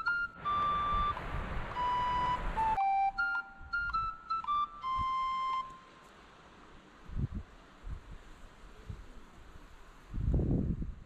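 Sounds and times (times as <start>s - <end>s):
flute-like melody: 0.0s - 6.2s.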